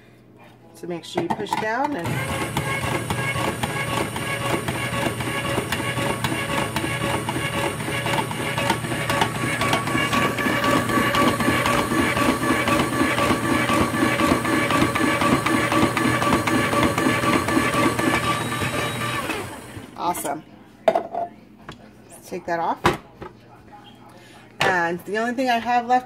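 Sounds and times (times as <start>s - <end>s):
electric slicer motor whining: 2.0s - 19.9s.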